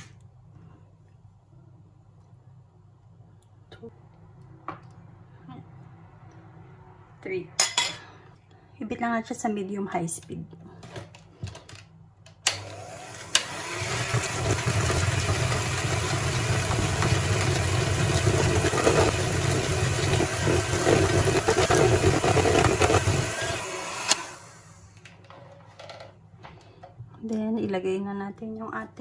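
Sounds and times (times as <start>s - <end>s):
electric hand mixer whirring: 12.5s - 25.0s.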